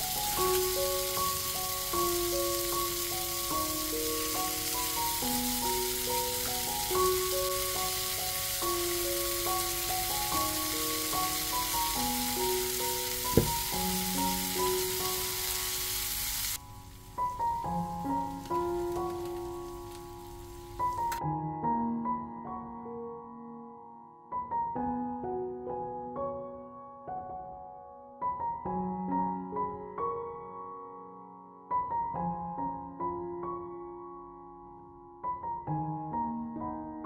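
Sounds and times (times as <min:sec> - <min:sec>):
meat sizzling in a skillet: 0:00.0 - 0:21.2
simple melody: 0:00.0 - 0:37.0
sharp knock: 0:13.3 - 0:13.6.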